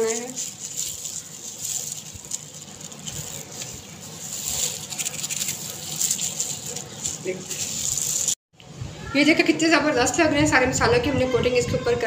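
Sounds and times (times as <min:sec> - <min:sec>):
plastic gloves crinkling: 0:00.0 - 0:08.4.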